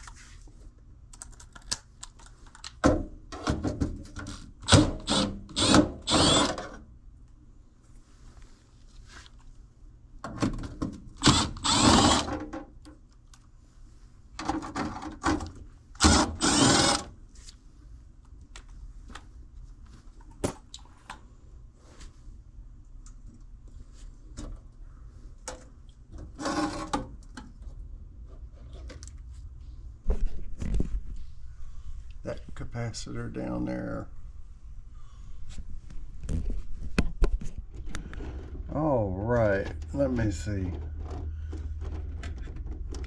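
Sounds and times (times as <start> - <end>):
small clicks and handling noises: 1.1 - 2.8, 12.8 - 13.5, 18.2 - 21.2, 28.6 - 29.3
cordless drill spinning: 5.0 - 6.6, 11.2 - 12.3, 16.0 - 17.1.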